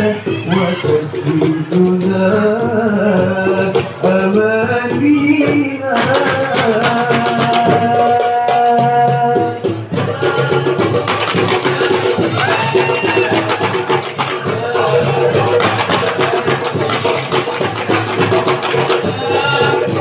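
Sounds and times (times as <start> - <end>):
boy singing into microphone: 0.0 - 16.4, 18.9 - 20.0
large barrel drum: 0.0 - 20.0
small hand drums: 0.0 - 20.0.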